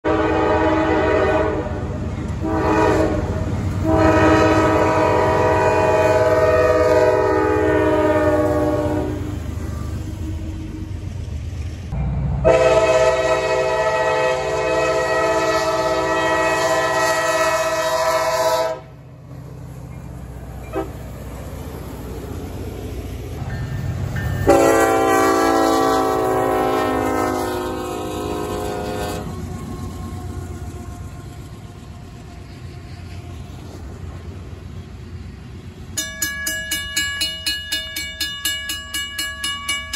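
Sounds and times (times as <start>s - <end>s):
locomotive air horn blasts: 0.0s - 10.6s, 12.4s - 19.0s, 20.6s - 21.0s, 24.4s - 29.8s
second locomotive horn: 0.0s - 10.9s, 12.4s - 19.0s, 20.6s - 21.0s, 24.4s - 29.8s
rumble of passing train: 0.0s - 39.9s.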